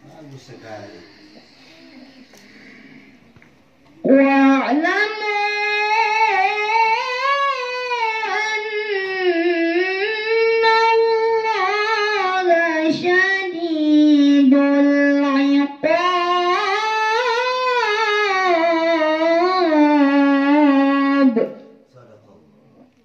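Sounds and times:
girl reciting melodically: 0:00.5 - 0:02.8, 0:03.8 - 0:21.8.

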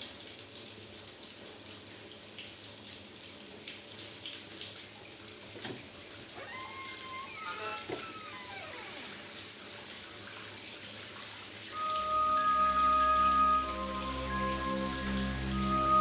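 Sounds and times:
bathtub faucet running: 0:05.5 - 0:16.0
high wavering squeal: 0:06.4 - 0:09.2, 0:11.8 - 0:16.0.

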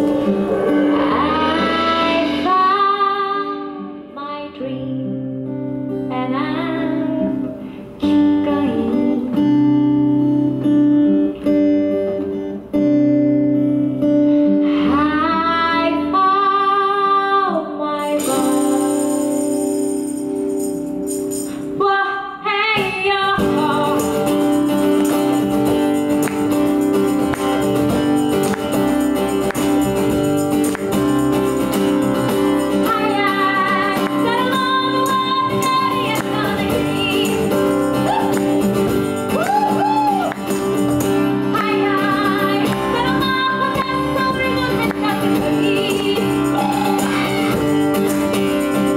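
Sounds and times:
strummed acoustic guitar: 0:00.0 - 0:04.2, 0:22.8 - 0:48.9
female singer: 0:00.8 - 0:05.3, 0:06.0 - 0:09.8, 0:14.7 - 0:19.3, 0:21.8 - 0:24.4, 0:32.7 - 0:38.4, 0:41.4 - 0:47.6
tambourine shaken: 0:18.0 - 0:21.8, 0:23.5 - 0:48.9.

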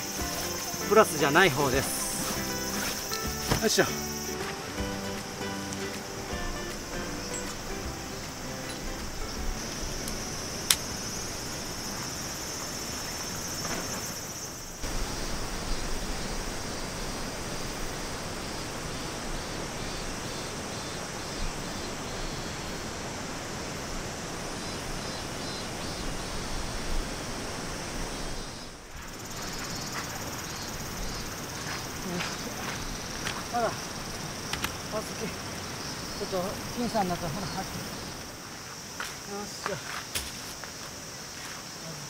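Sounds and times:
high thin hiss: 0:00.0 - 0:11.4.

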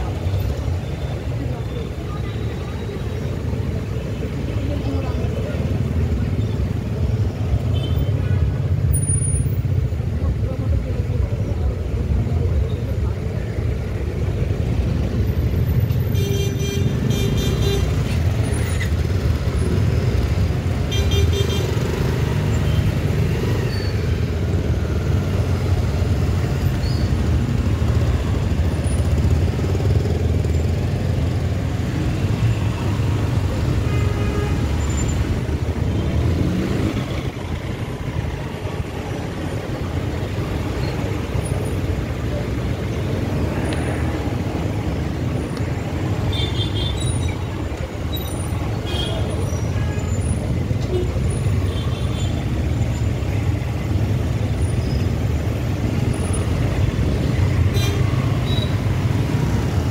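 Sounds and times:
vehicle rumble on road: 0:16.8 - 0:59.9.

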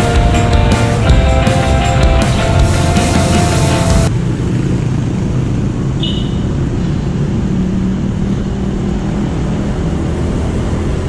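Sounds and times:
motorcycle engine: 0:00.0 - 0:08.5.

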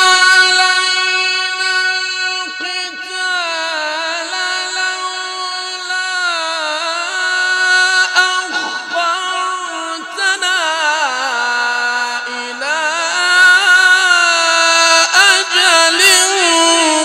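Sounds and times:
person chanting melodically: 0:00.0 - 0:17.0.

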